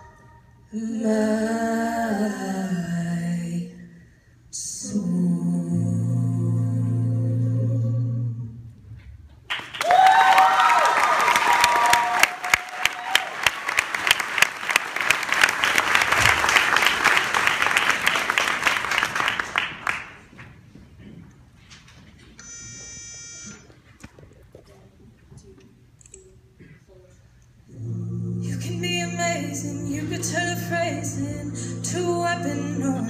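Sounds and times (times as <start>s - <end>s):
vocal group holding chord: 0.0s - 3.9s, 4.5s - 8.8s, 27.6s - 33.0s
audience applauding and cheering: 9.5s - 20.3s.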